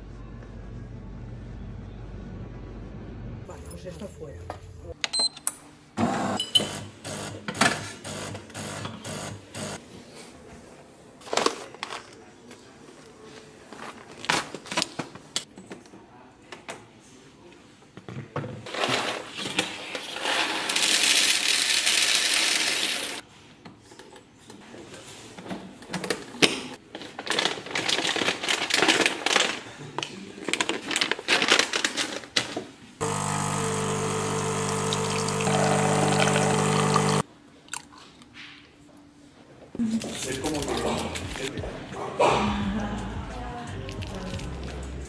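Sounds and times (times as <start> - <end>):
espresso machine humming: 33.0 - 37.2.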